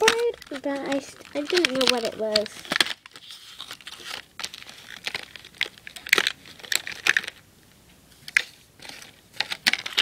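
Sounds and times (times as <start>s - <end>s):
packaging crinkling and rustling: 0.0s - 7.4s, 8.1s - 10.0s.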